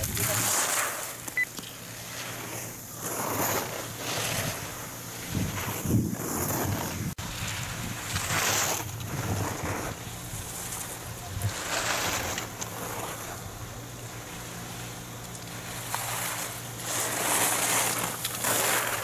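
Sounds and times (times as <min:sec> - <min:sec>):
skis scraping on snow: 0:00.0 - 0:19.0
wind on microphone: 0:04.0 - 0:12.6.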